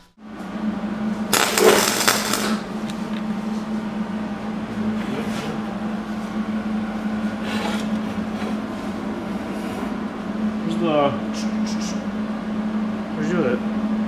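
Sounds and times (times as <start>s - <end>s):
steady low hum: 0.0s - 14.0s
welding arc crackling: 1.3s - 3.2s.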